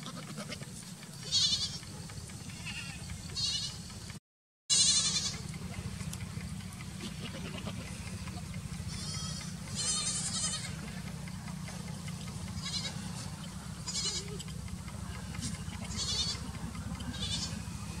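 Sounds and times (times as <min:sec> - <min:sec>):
goats bleating: 0:00.0 - 0:01.8, 0:02.4 - 0:03.9, 0:04.7 - 0:05.8, 0:06.9 - 0:11.6, 0:12.4 - 0:18.0.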